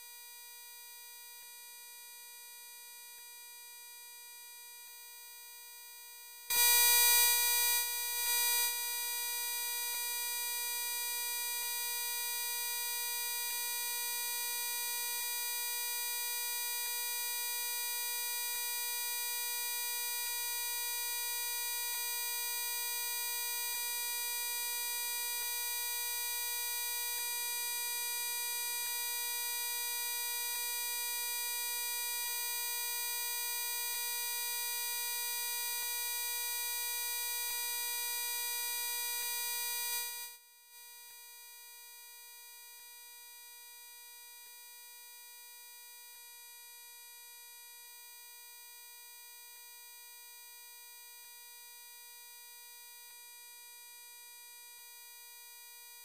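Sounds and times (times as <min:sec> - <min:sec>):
steady electronic buzzing tone: 0:06.5 - 0:10.1.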